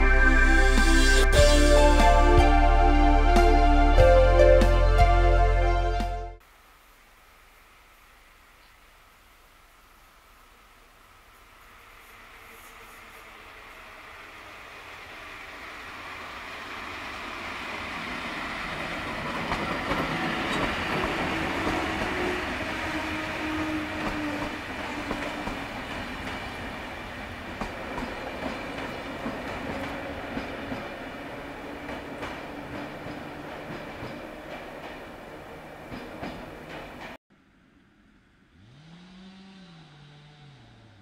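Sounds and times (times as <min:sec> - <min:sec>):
locomotive hum: 0:10.3 - 0:38.8
train rumble: 0:11.3 - 0:37.2
wheels clicking over rail joints: 0:16.8 - 0:37.2.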